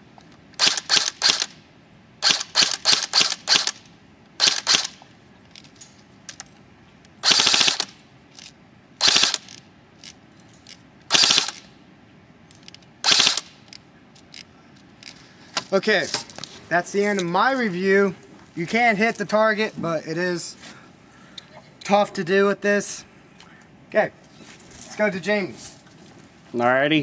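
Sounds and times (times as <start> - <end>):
airsoft rifle firing: 0.6 - 1.6, 2.2 - 5.0, 7.2 - 8.0, 9.0 - 9.6, 11.1 - 11.7, 13.0 - 13.6.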